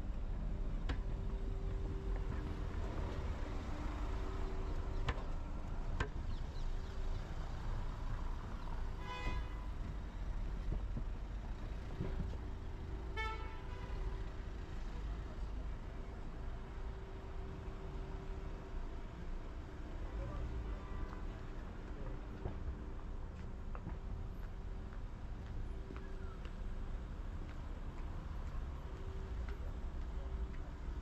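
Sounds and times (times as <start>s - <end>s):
city traffic rumble: 0.0s - 31.0s
vehicle horn honks: 9.0s - 9.6s, 13.2s - 14.1s.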